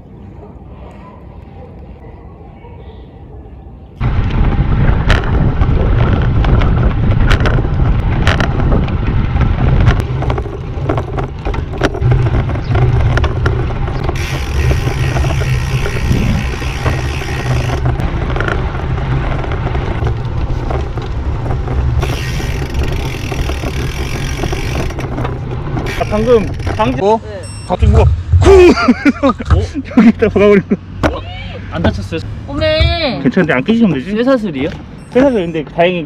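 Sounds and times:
tyre and road noise: 0:00.0 - 0:36.0
wind rushing over microphone: 0:04.0 - 0:27.0.

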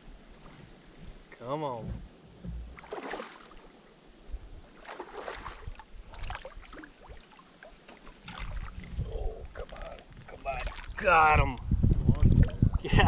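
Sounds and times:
water splashing around kayak: 0:01.7 - 0:03.8, 0:04.7 - 0:13.0.

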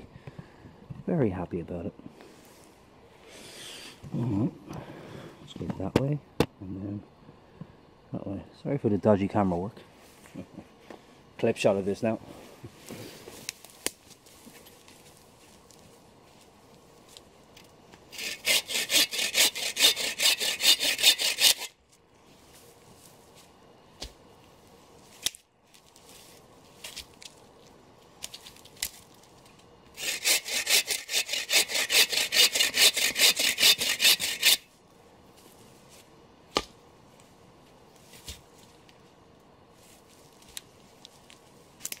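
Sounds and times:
hand saw cutting log: 0:18.1 - 0:21.8, 0:29.9 - 0:34.7.

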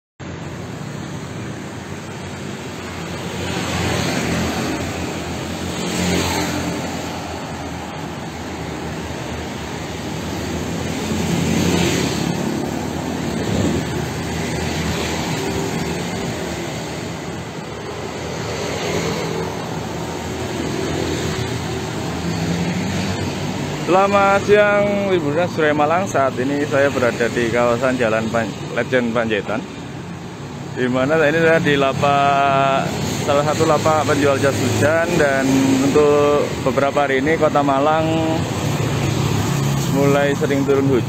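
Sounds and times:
cars passing: 0:00.2 - 0:41.0
road hum: 0:00.2 - 0:41.0.

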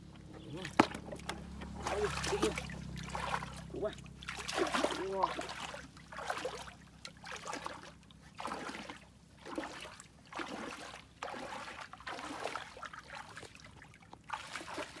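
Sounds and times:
feet splashing through muddy water: 0:00.0 - 0:15.0.

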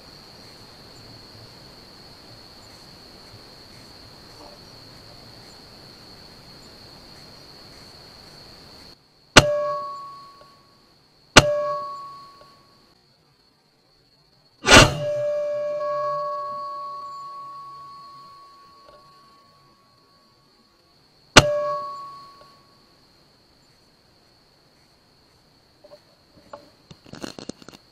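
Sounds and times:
crickets chirring: 0:00.0 - 0:27.9
loud ringing bang: 0:09.4 - 0:10.3, 0:11.4 - 0:12.3, 0:14.6 - 0:18.3, 0:21.4 - 0:22.3
metallic dings: 0:09.4 - 0:10.6, 0:11.4 - 0:12.6, 0:14.7 - 0:19.4, 0:21.4 - 0:22.6.

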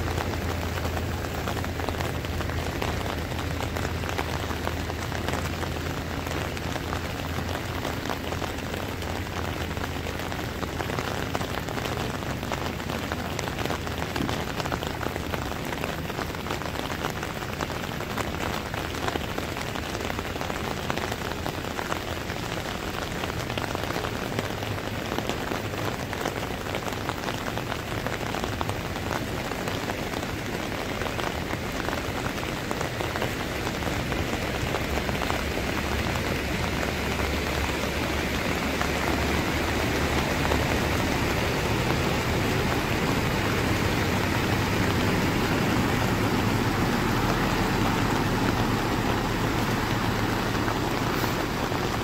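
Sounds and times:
heavy rain on standing water: 0:00.0 - 0:52.0
lorry rumbling through water: 0:27.7 - 0:52.0.

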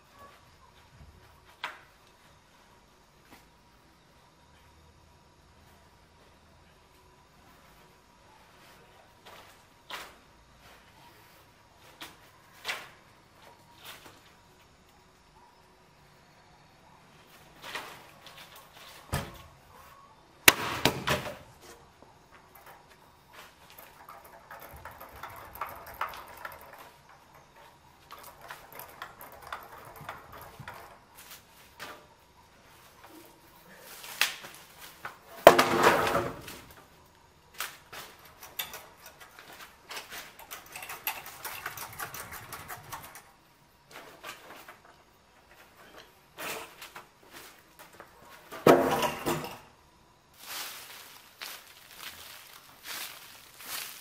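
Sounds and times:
rustling over dry debris: 0:50.3 - 0:54.0.

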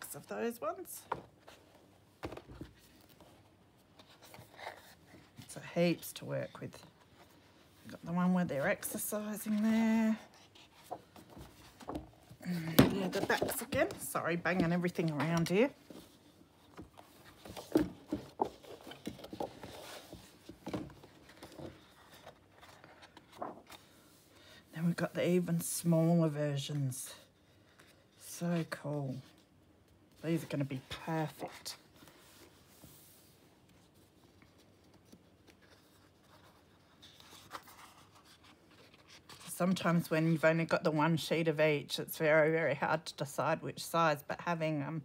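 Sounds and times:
paper sheets rustling: 0:08.6 - 0:24.5.

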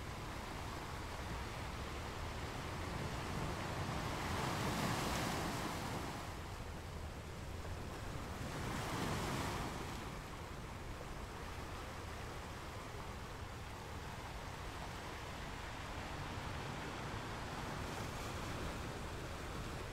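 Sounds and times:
waves breaking on sandy beach: 0:00.1 - 0:19.9.

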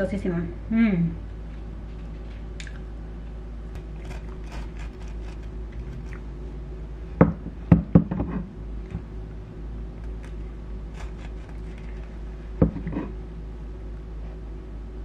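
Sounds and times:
faint scraping and clicking: 0:03.8 - 0:06.2, 0:10.0 - 0:13.2
knife sawing through bread: 0:04.0 - 0:06.2, 0:10.1 - 0:12.1.

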